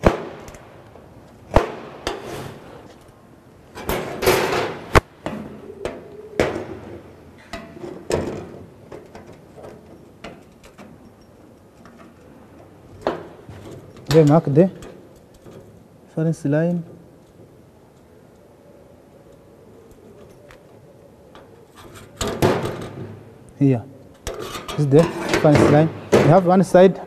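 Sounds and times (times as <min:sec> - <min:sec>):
metal scraping on steel plate: 0:24.3 - 0:26.4.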